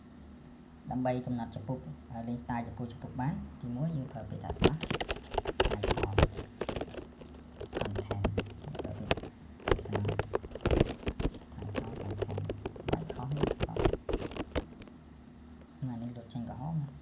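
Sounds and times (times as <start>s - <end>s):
computer keyboard typing: 4.5s - 14.9s.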